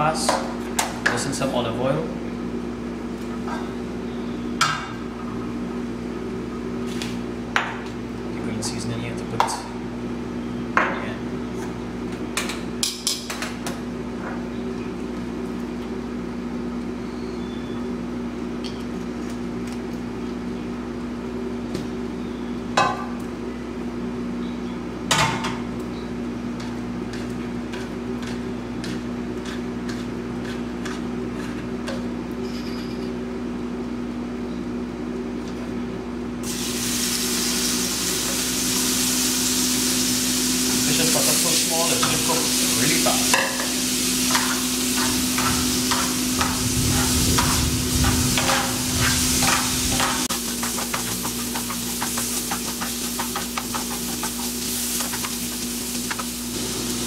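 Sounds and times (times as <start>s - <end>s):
spatula scraping in pan: 27.1s - 31.7s, 41.1s - 56.4s
fish sizzling in frying pan: 36.4s - 57.0s
low hum: 44.1s - 50.4s.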